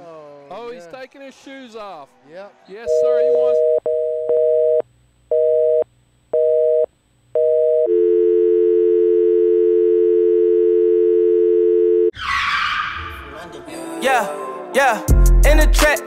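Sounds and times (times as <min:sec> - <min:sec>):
telephone busy signal: 0:02.9 - 0:05.8, 0:06.4 - 0:12.1
telephone dial tone: 0:03.6 - 0:12.1.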